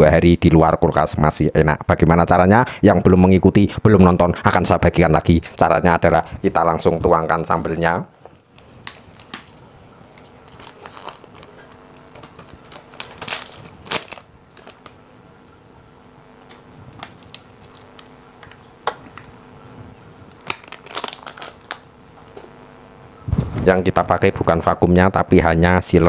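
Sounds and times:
foil pouch crinkling: 8.5 - 15.5, 16.4 - 19.4, 20.3 - 22.4.

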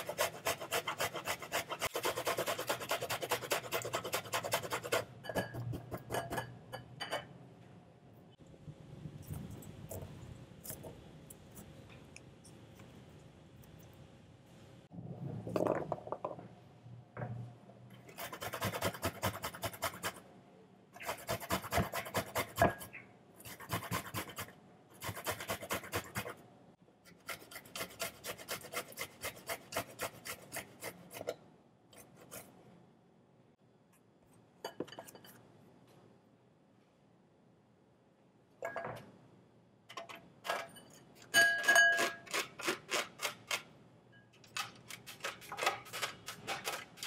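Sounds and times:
garlic grated on metal grater: 0.0 - 5.1, 18.1 - 20.2, 21.0 - 26.4, 27.1 - 31.3, 41.9 - 43.6, 44.6 - 47.0.

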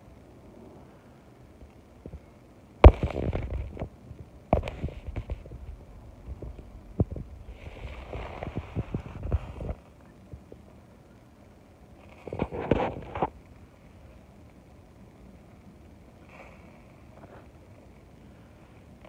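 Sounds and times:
knocks and scraping rustle: 2.8 - 9.9, 12.1 - 13.4.

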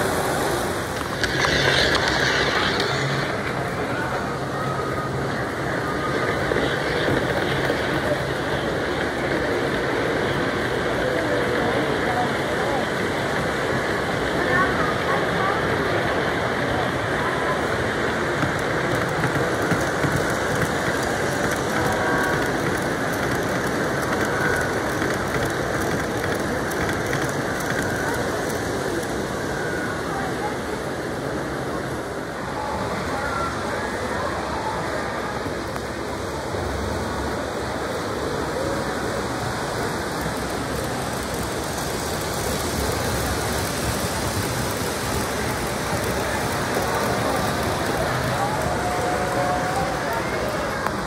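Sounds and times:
model train clattering on track: 0.0 - 4.5, 5.5 - 14.7, 17.5 - 30.8, 39.0 - 51.0
mechanical whir: 0.0 - 9.2.

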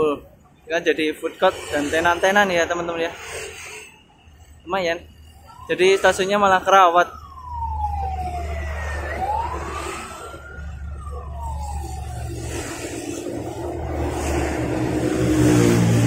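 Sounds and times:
road traffic rumble: 0.0 - 16.0
siren wailing: 2.2 - 16.0
vehicle engine: 7.2 - 16.0.

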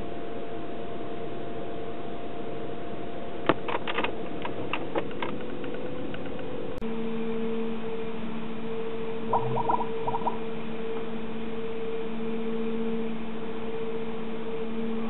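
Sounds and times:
lower steady hum: 6.4 - 15.0.

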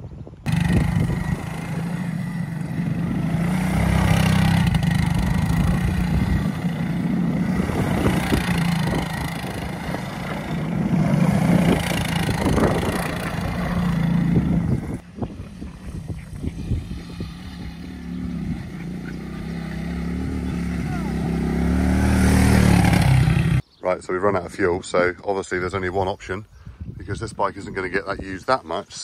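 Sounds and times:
quad bike engine revving: 0.5 - 23.6.

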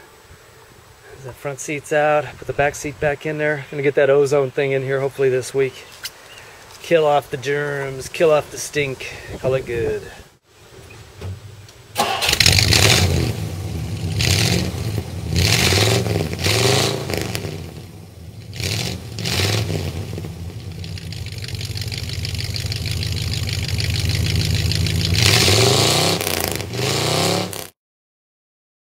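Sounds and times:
car engine revving: 12.0 - 27.8.

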